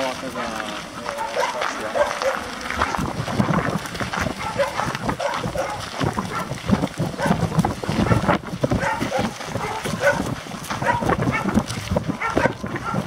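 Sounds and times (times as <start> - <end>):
footsteps on dirt track: 0.0 - 13.0
dog barking: 1.0 - 3.0, 4.4 - 6.6, 7.2 - 7.4, 8.0 - 13.0.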